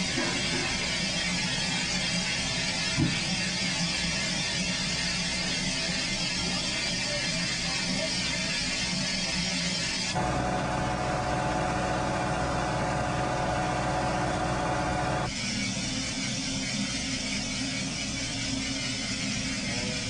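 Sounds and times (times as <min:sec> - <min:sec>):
train engine running: 0:00.0 - 0:20.0
whine with steady tones: 0:09.5 - 0:18.4
hissing hum: 0:10.2 - 0:15.3.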